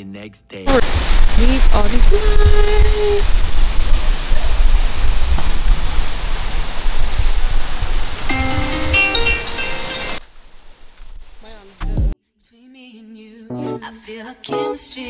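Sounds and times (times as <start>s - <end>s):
wind buffeting microphone: 0.7s - 10.2s.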